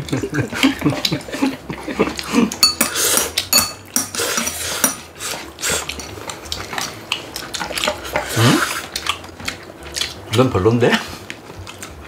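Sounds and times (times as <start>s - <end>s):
utensils clicking against bowls: 2.5s - 5.1s.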